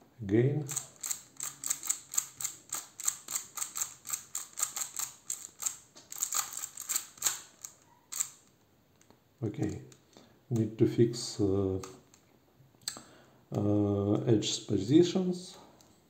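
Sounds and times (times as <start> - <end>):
puzzle cube clicking: 0.7 - 8.4.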